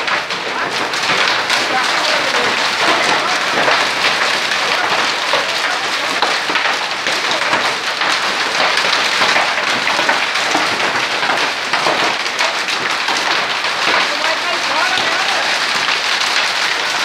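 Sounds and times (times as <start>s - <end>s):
hail and rain pelting down: 0.0s - 17.0s.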